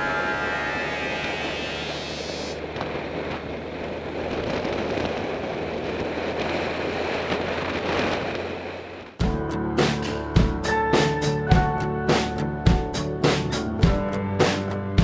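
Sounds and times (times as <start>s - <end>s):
wind rushing over microphone: 0.0s - 9.2s
motorcycle engine humming: 0.0s - 13.0s.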